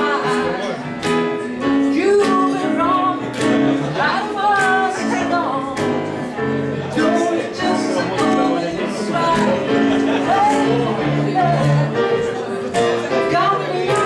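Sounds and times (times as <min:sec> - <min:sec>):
guitar accompaniment: 0:00.0 - 0:14.0
man singing into microphone: 0:06.9 - 0:14.0.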